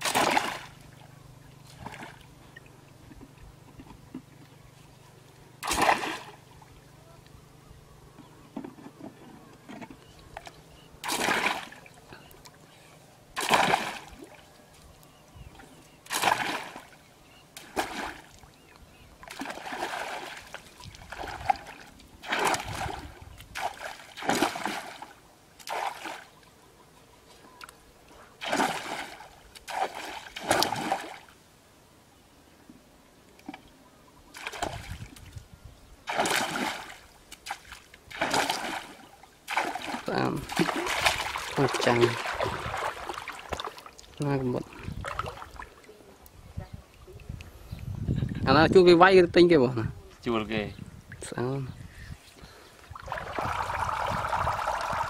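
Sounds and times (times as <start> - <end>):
pole splashing in muddy water: 0.0 - 1.0, 1.6 - 2.3, 5.6 - 6.4, 9.7 - 12.0, 13.4 - 14.4, 16.0 - 17.0, 17.6 - 18.4, 19.2 - 26.4, 28.4 - 31.3, 34.3 - 35.3, 36.0 - 45.8, 52.9 - 55.0.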